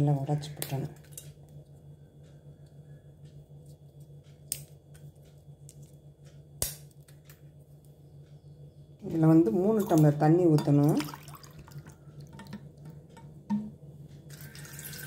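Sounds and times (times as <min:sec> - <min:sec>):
low steady hum: 0:00.0 - 0:15.0
cinnamon bark snapping: 0:06.6 - 0:06.8.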